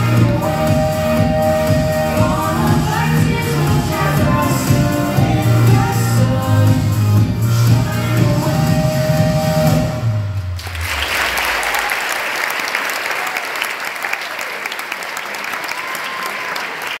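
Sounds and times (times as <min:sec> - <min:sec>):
dance music: 0:00.0 - 0:11.9
audience applauding: 0:10.6 - 0:17.0.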